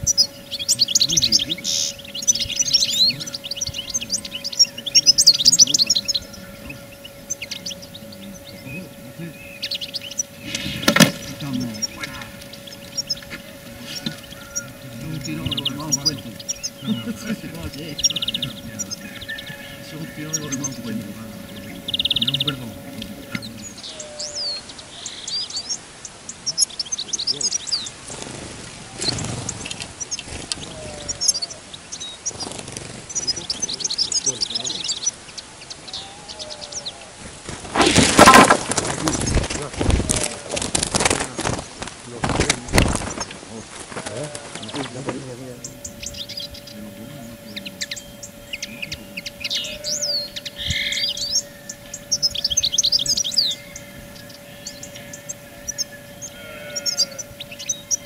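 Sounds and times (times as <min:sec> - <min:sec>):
buzzy bird trill: 0:00.0 - 0:58.0
small songbirds chirping: 0:00.0 - 0:58.0
bird wings flapping: 0:10.4 - 0:12.6, 0:28.0 - 0:30.9, 0:32.3 - 0:33.6, 0:37.2 - 0:45.2.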